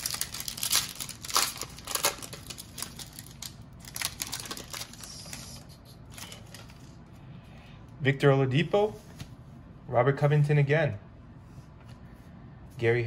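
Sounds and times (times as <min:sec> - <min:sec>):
foil wrapper tearing and crinkling: 0:00.0 - 0:06.8.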